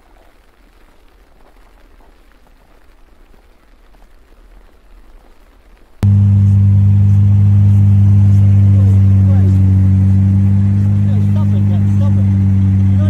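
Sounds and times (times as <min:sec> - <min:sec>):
faint background noise: 0:00.0 - 0:06.1
loud low hum: 0:06.0 - 0:13.0.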